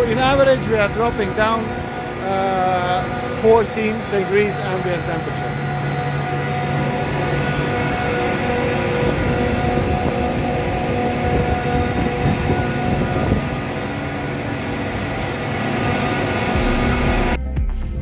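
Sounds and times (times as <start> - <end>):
chiller fans and compressors droning: 0.0 - 17.5
music: 16.4 - 18.0.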